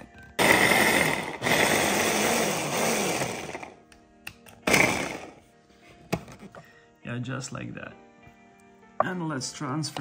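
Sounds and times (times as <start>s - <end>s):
electric food chopper motor: 0.4s - 3.8s, 4.5s - 5.4s.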